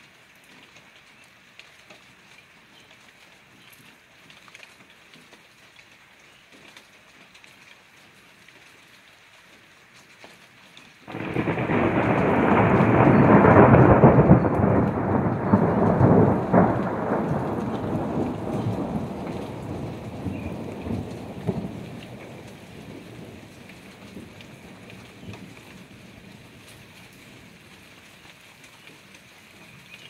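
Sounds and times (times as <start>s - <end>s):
sharp thunder crack: 11.1s - 23.4s
thunder rumble: 11.1s - 27.0s.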